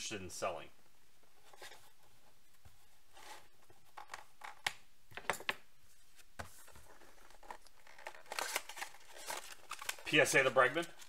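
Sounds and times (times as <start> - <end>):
trading cards rustling: 6.4 - 11.0.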